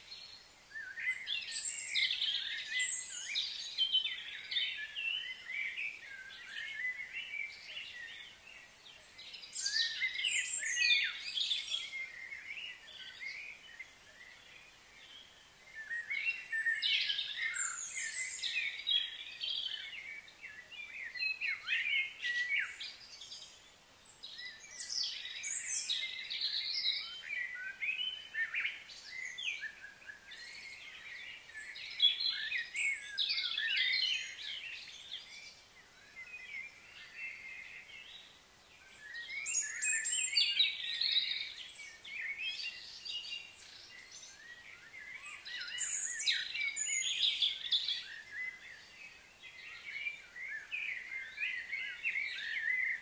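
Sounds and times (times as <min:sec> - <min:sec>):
birds chirping and singing: 0:00.0 - 0:53.0.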